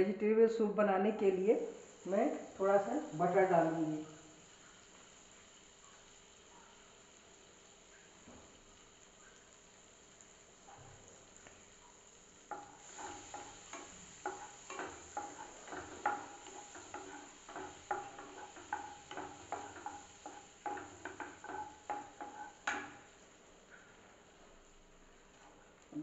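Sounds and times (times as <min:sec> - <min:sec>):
wooden spatula scraping a pan: 0:12.5 - 0:23.1.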